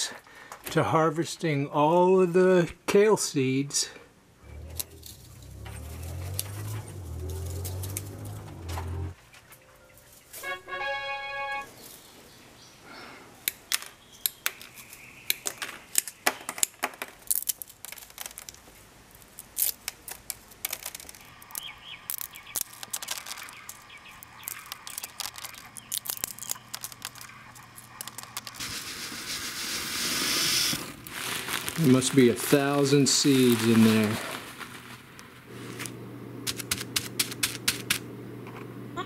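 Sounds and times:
seed pods crackling and snapping: 4.7 - 8.8, 13.5 - 28.9, 30.4 - 38.0
seeds poured into plastic bag: 19.2 - 38.0.

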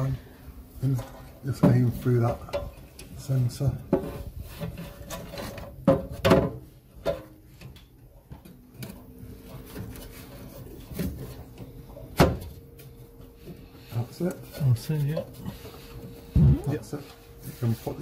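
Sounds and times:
fan unit knocking and scraping: 0.8 - 11.7.

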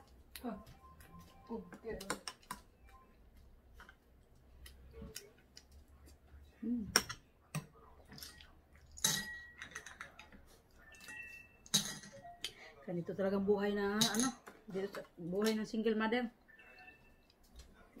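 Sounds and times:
spoon clinking in ceramic bowl: 9.0 - 10.1.

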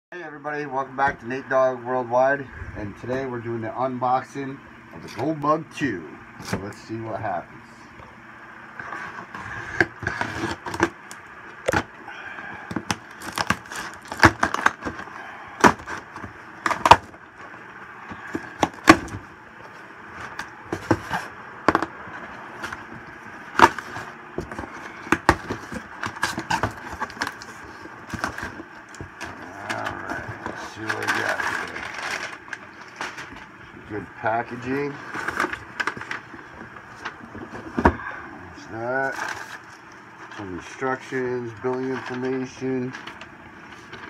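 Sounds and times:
packing paper crackling: 12.9 - 17.1, 23.5 - 33.5.

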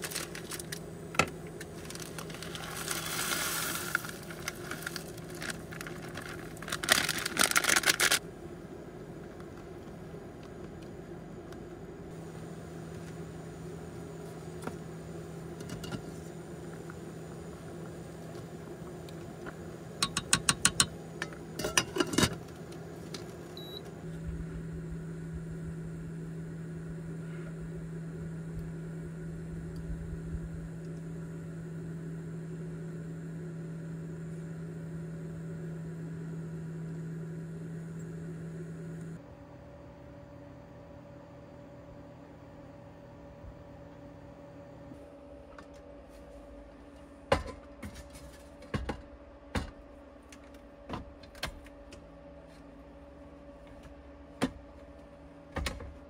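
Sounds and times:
steady mechanical hum: 0.0 - 56.0.

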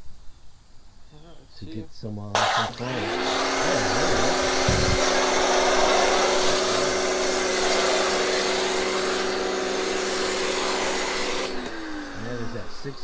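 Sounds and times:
foam spraying hiss: 2.4 - 11.6
pressure washer motor hum: 2.4 - 13.0.

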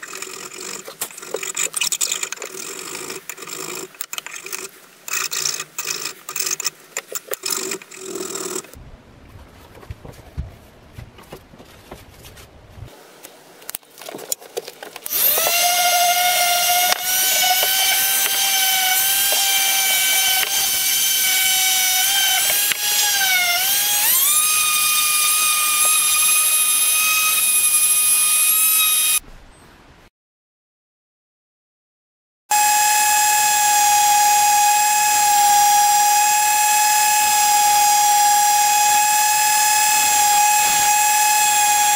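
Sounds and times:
hand rubbing a wooden handle: 9.3 - 12.9
orbital sander whining: 15.1 - 29.2, 32.5 - 41.9.

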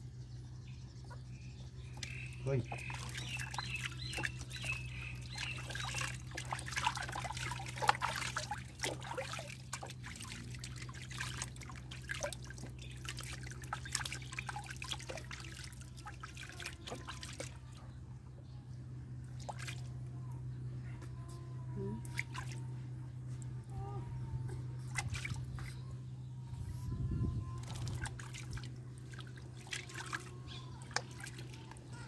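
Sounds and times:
steady low hum: 0.0 - 32.0
water splashing and trickling: 1.0 - 18.0, 19.2 - 20.1, 21.8 - 22.7, 24.8 - 25.9, 26.7 - 32.0.

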